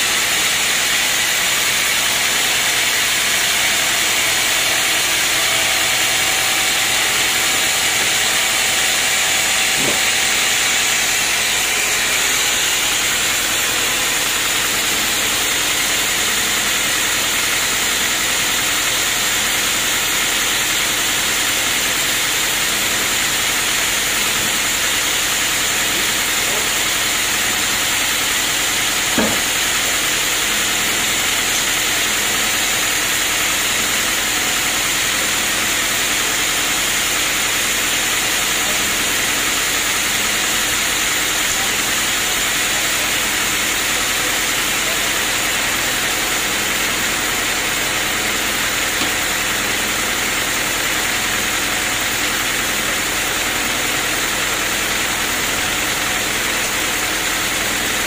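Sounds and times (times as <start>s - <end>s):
band sawmill running: 0.0s - 58.0s
short knock: 29.2s - 29.5s.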